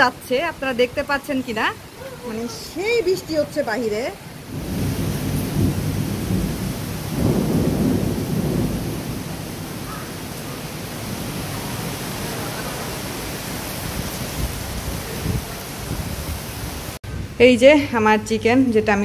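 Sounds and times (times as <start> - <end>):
heavy rain pouring: 0.0 - 17.3
thunder rumble: 2.8 - 17.6.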